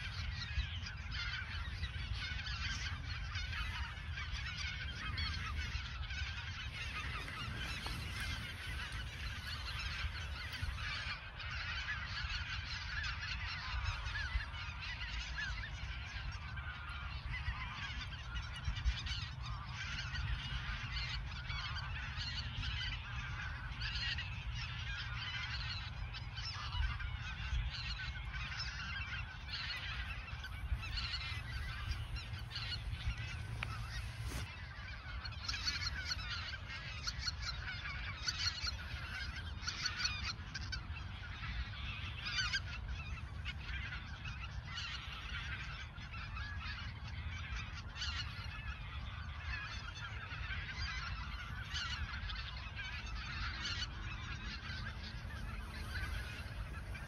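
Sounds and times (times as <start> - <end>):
geese honking: 0.0 - 57.0
steady low rumble: 29.0 - 36.7, 53.8 - 57.0.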